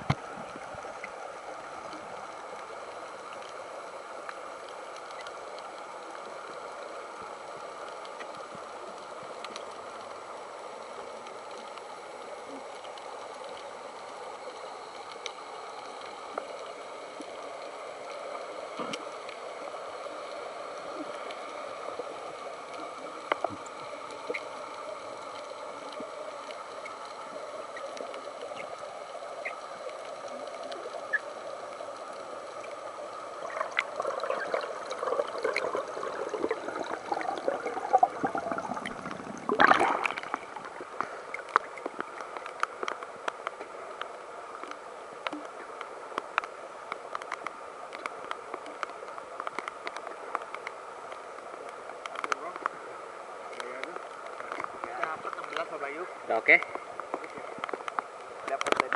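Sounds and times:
underwater rushing: 0:00.0 - 0:58.9
water churning: 0:20.9 - 0:43.1.

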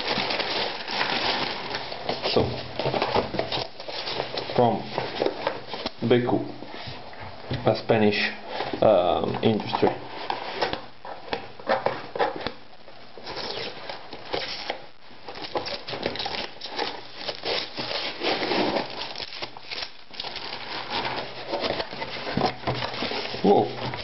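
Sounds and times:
packing tape peeling: 0:13.2 - 0:22.1
cardboard box being opened: 0:15.3 - 0:24.0.

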